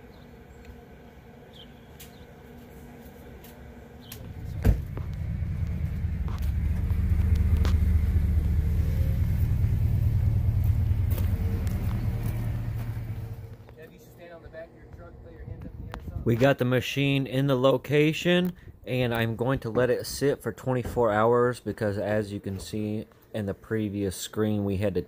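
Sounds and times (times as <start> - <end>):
loud steady low rumble: 3.8 - 13.8, 14.4 - 17.9.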